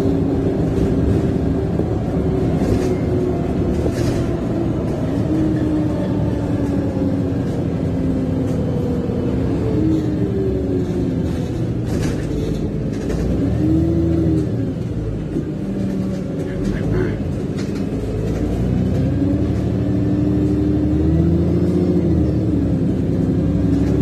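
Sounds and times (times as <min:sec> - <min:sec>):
bus engine rumbling and whining: 0:00.0 - 0:24.0.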